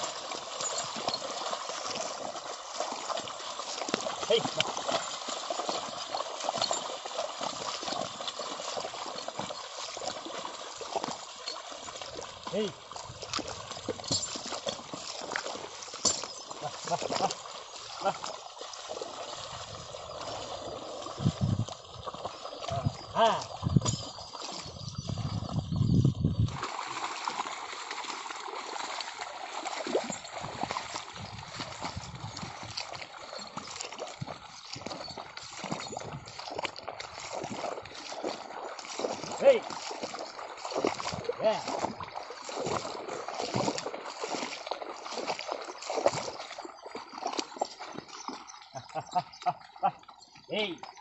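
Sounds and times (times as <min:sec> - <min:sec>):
hooves splashing in mud: 0:00.0 - 0:51.0
mud and water sloshing: 0:00.0 - 0:51.0.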